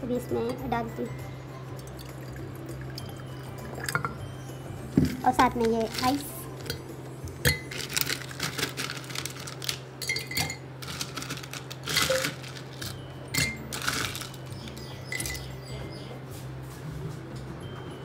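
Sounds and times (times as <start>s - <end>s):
ice cubes clinking in glass: 5.0s - 6.8s, 7.4s - 15.5s.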